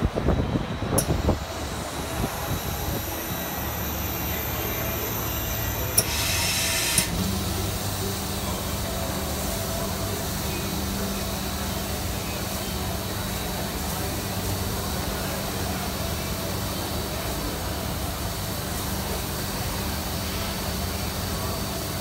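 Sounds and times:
pneumatic conveyor drone: 0.0s - 22.0s
steady low hum: 0.0s - 22.0s
valve clicks: 5.9s - 7.2s
hiss of air: 6.0s - 12.4s.

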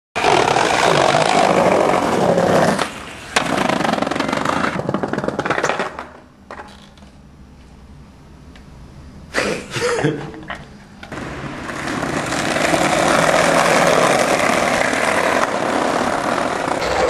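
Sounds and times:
skateboard clack: 0.2s - 7.0s, 11.0s - 17.0s
skateboard wheels on brick: 0.2s - 7.1s, 11.0s - 17.0s.

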